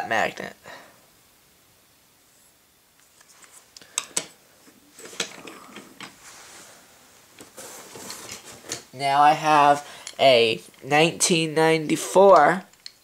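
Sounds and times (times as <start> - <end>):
soft rustle: 2.2 - 3.8, 4.4 - 9.0.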